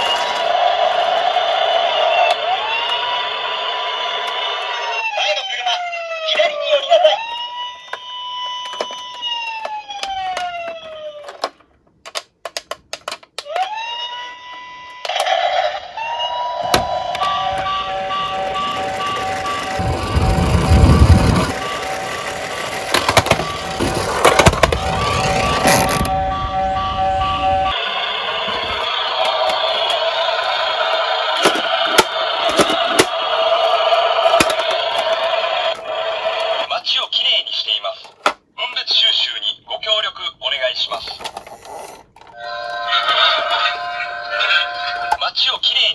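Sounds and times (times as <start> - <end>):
toy electronic siren: 0.0 - 11.6, 13.4 - 36.7, 42.3 - 45.2.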